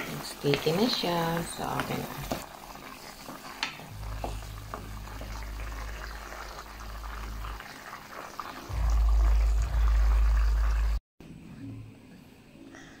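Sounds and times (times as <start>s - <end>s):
stew bubbling in a pan: 0.0s - 11.0s
low rumble: 3.9s - 7.6s, 8.7s - 11.0s.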